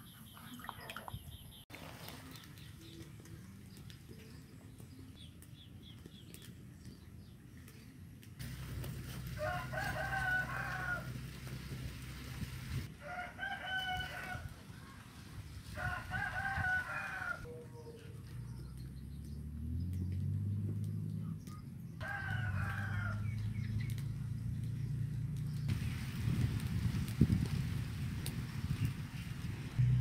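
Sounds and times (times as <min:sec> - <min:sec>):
rooster crowing: 0:09.4 - 0:11.2, 0:13.0 - 0:14.5, 0:15.8 - 0:18.0, 0:22.0 - 0:23.3.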